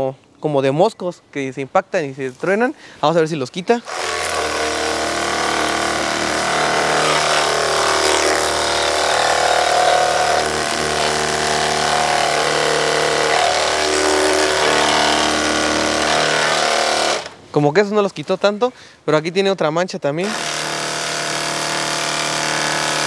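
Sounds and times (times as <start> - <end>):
pressure washer pump whine: 3.9 - 17.4.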